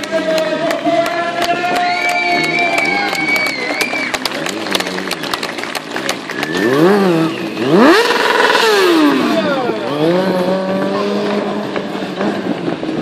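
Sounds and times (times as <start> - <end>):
motorcycle engine revving: 3.8 - 13.0.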